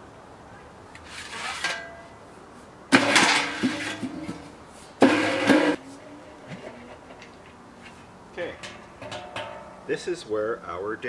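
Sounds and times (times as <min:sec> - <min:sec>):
metal stove pipes scraping: 0:01.0 - 0:02.0, 0:02.9 - 0:05.8, 0:07.9 - 0:09.8.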